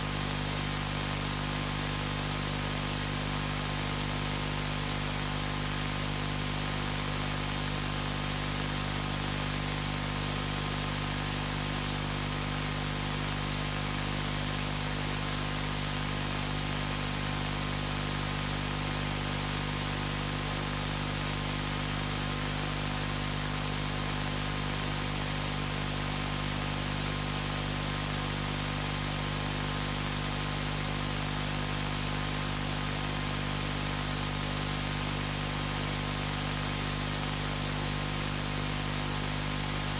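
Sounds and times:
static hiss: 0:37.2 - 0:39.9.

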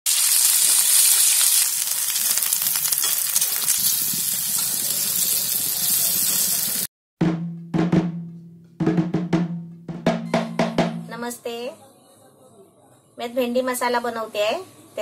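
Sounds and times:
hot oil sizzling: 0:00.1 - 0:06.9.

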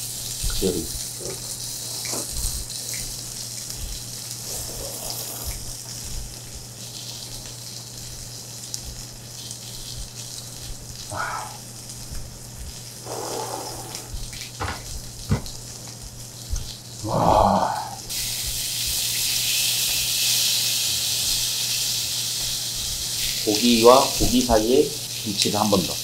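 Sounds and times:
meat sizzling on a grill plate: 0:00.0 - 0:26.0
sharp knocks: 0:14.6 - 0:15.6.

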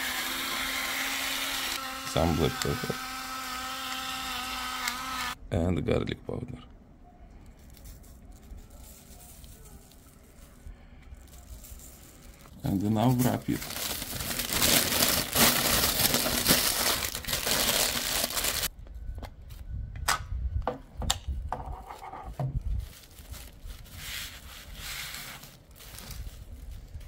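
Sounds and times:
faint handling noises: 0:07.1 - 0:17.1
foil crinkling: 0:07.5 - 0:18.7, 0:22.6 - 0:27.0.

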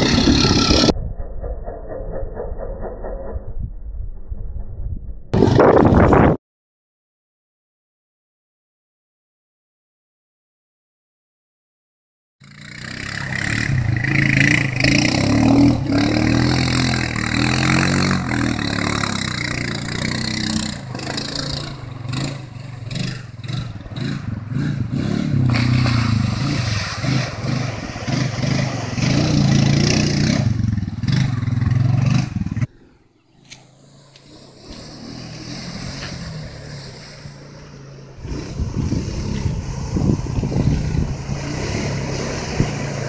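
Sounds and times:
atv engine revving: 0:00.0 - 0:00.9, 0:12.4 - 0:32.7, 0:33.4 - 0:43.0.

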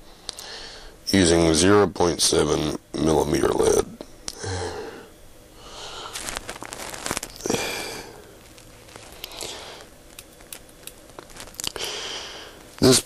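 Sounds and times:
soft breaths: 0:04.4 - 0:06.4, 0:07.4 - 0:10.0, 0:11.6 - 0:12.8
pencil clicks and rustles: 0:06.1 - 0:07.6, 0:08.3 - 0:11.9.

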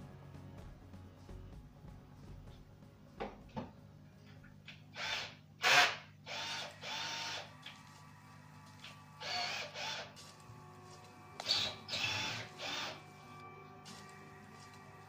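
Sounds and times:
power drill whirring: 0:04.9 - 0:07.8, 0:08.8 - 0:10.2, 0:11.4 - 0:13.3.

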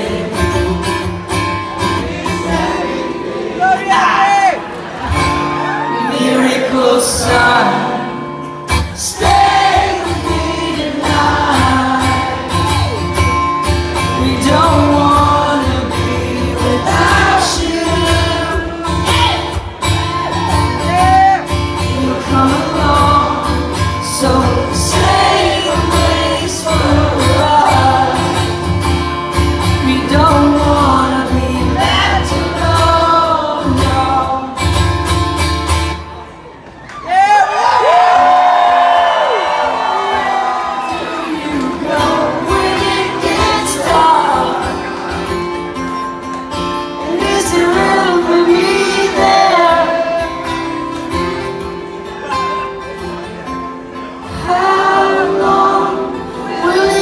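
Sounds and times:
man singing: 0:00.0 - 0:04.6, 0:05.8 - 0:08.2, 0:14.0 - 0:19.6, 0:20.8 - 0:28.5, 0:29.7 - 0:34.9, 0:47.0 - 0:50.6, 0:54.3 - 0:57.0
acoustic guitar: 0:00.0 - 0:36.9, 0:39.0 - 0:57.0.

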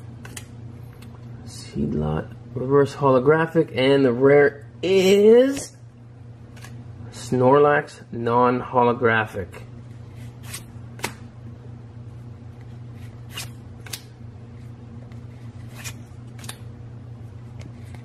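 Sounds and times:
low background hum: 0:00.0 - 0:18.0
cards swishing: 0:10.1 - 0:11.3, 0:12.9 - 0:14.1, 0:15.1 - 0:16.6.

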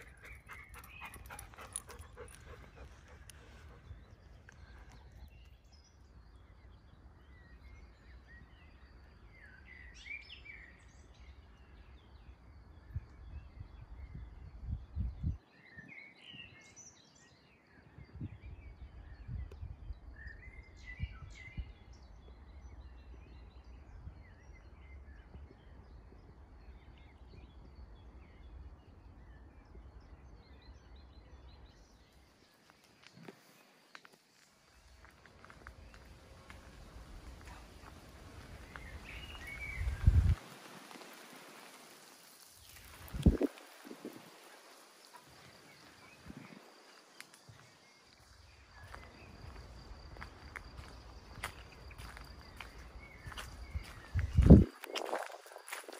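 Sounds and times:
birdsong: 0:00.0 - 0:55.9
low wind rumble: 0:10.7 - 0:15.4, 0:34.8 - 0:41.2, 0:42.8 - 0:44.5, 0:47.9 - 0:54.9.

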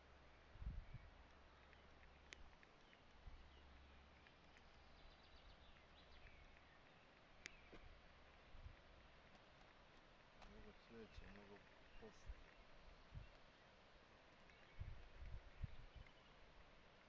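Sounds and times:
faint bird chirps: 0:00.0 - 0:08.5, 0:10.5 - 0:17.0
sharp clicks: 0:01.3 - 0:05.0.

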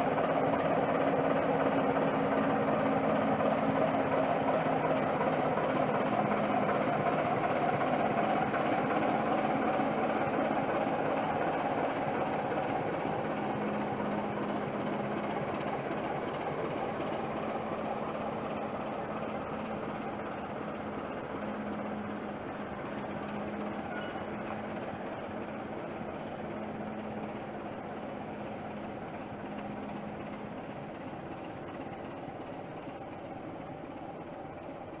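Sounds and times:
diesel locomotive engine rumbling: 0:00.0 - 0:35.0.

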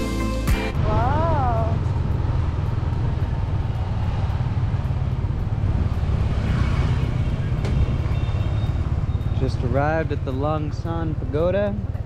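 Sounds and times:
steady low rumble: 0:00.7 - 0:07.9.

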